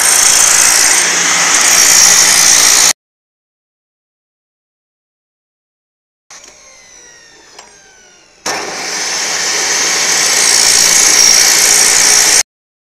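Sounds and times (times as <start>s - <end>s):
chop saw grinding metal pipe: 0.0s - 2.9s, 6.3s - 12.4s.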